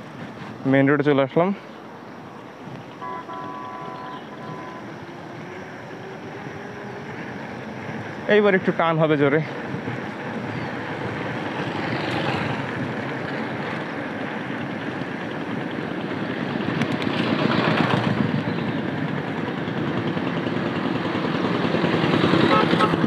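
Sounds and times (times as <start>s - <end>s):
road traffic rush: 0.0s - 23.0s
wind: 0.0s - 23.0s.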